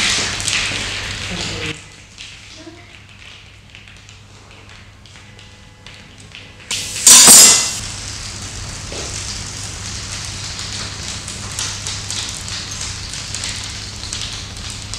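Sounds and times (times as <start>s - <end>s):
loud burst of noise: 6.7s - 8.1s
crackling hiss: 6.7s - 14.9s.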